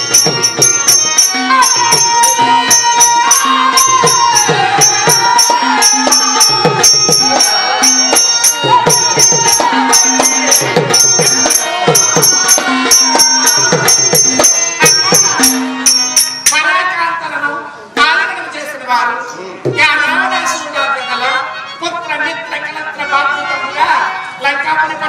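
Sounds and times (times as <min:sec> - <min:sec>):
person singing: 0:00.0 - 0:16.0
hand drum: 0:00.0 - 0:16.6
metallic cymbal strokes: 0:00.0 - 0:16.7.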